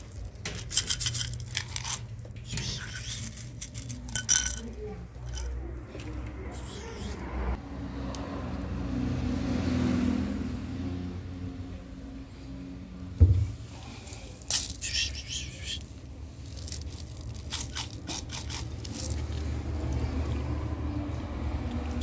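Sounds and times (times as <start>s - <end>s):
kibble rattling on tiles: 0.0s - 5.6s, 16.4s - 19.5s
thump: 13.2s - 13.6s.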